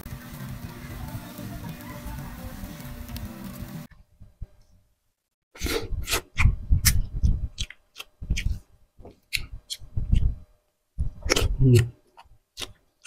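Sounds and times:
music: 0.0s - 3.9s
wet chewing: 7.6s - 8.6s, 11.2s - 12.8s.

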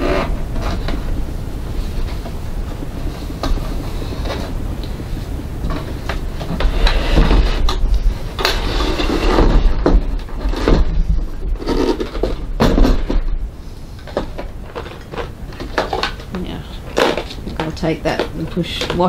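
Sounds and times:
plastic tray scraping and rattling: 5.7s - 13.3s.

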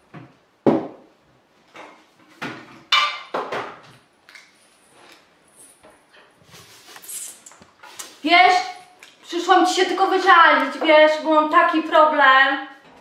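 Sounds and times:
dishes knocking and clinking: 1.7s - 4.0s.

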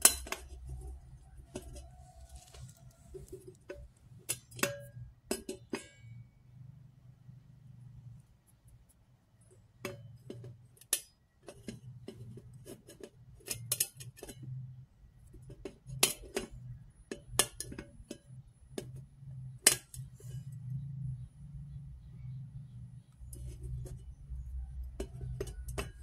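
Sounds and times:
fingernails clicking on metal dish: 0.0s - 6.0s, 9.9s - 14.6s, 15.2s - 19.0s, 23.2s - 26.0s
low steady hum: 0.0s - 26.0s.

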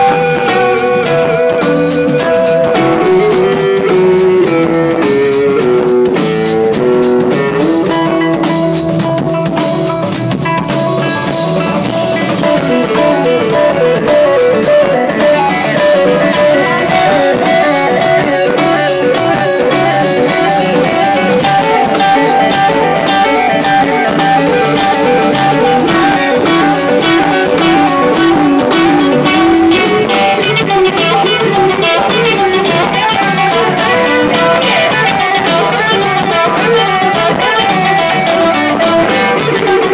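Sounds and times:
drum kit: 0.0s - 39.9s
electric guitars playing melodic lines: 0.0s - 39.9s.

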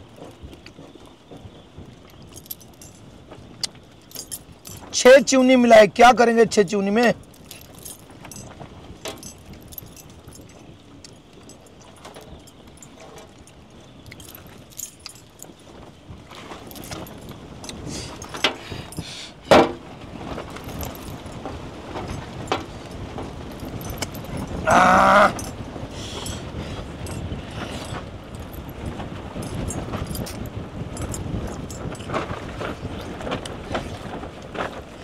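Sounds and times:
metal jewelry jangling: 2.1s - 5.4s, 7.2s - 15.7s, 16.3s - 19.4s, 20.5s - 21.4s, 22.0s - 32.3s.

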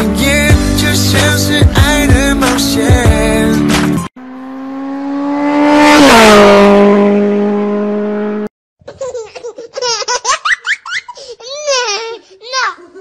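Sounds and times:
car passing by at speed: 4.2s - 8.5s.

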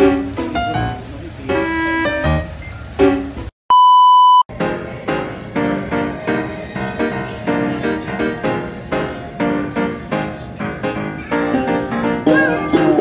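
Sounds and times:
piano music: 0.0s - 3.5s, 4.5s - 13.0s
test-card beep: 3.7s - 4.5s.

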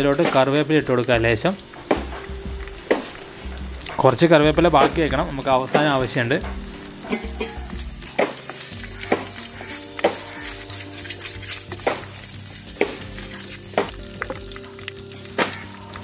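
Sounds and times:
leaves and seeds sizzling in oil: 0.0s - 16.0s
wooden spatula knocking a pot: 1.8s - 3.2s, 3.8s - 10.6s, 11.7s - 14.4s.

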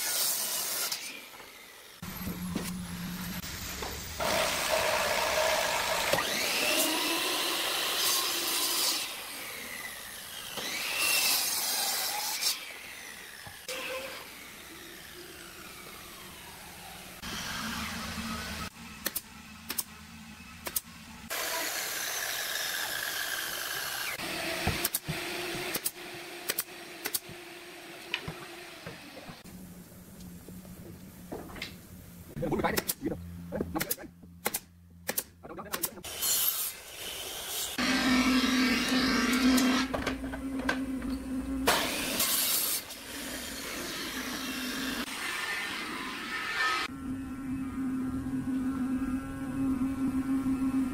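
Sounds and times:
saw hiss cutting wood: 0.0s - 19.8s, 21.3s - 25.1s, 36.0s - 39.9s, 41.6s - 46.9s
power tool motor humming: 0.9s - 18.8s, 21.3s - 29.4s, 36.1s - 50.9s
nail gun shots: 33.8s - 36.0s.

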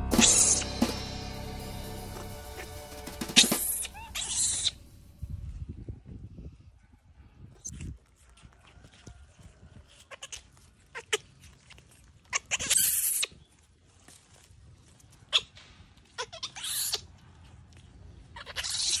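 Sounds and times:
baby monkeys squeaking: 3.4s - 4.8s, 16.2s - 17.0s, 18.4s - 19.0s
monkeys screaming shrilly: 3.6s - 4.8s.

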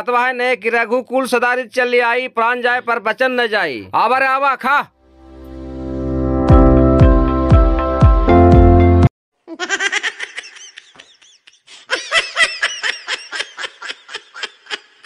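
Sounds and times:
background music: 5.0s - 9.1s
high-pitched laughter: 9.4s - 15.0s.

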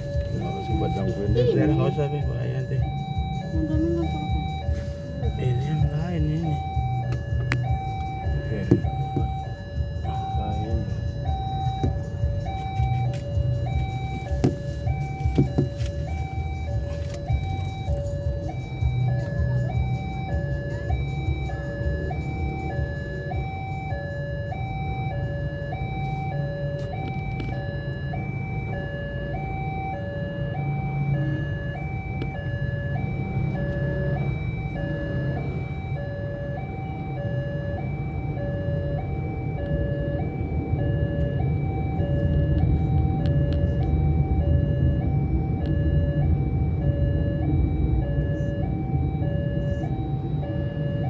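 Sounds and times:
level crossing two-tone alarm: 0.0s - 51.0s
low engine rumble: 0.0s - 51.0s.

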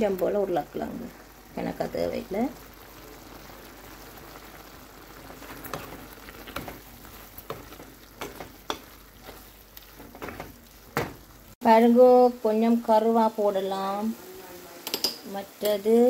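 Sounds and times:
food sizzling in a frying pan: 0.0s - 16.0s
wooden spatula scraping a pan: 5.2s - 11.3s.

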